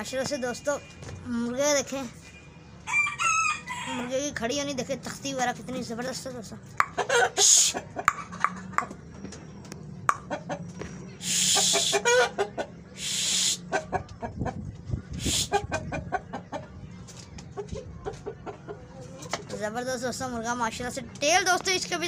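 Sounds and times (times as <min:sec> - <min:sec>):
chickens clucking: 0:06.1 - 0:19.6
brief hissing noises: 0:11.2 - 0:11.9, 0:13.0 - 0:13.6.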